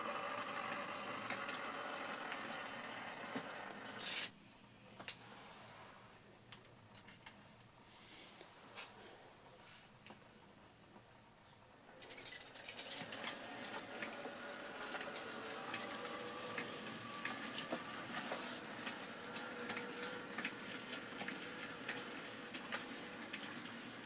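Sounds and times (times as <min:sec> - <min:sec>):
electric motor hum: 0:00.0 - 0:04.0, 0:12.9 - 0:24.0
wagons clicking over rail joints: 0:12.0 - 0:23.9.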